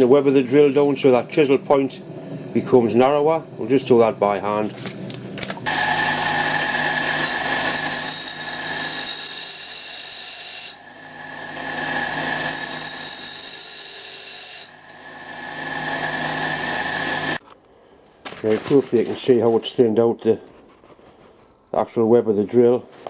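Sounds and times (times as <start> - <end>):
grinder whining: 5.6 - 17.4
drill grinding hiss: 5.7 - 17.4.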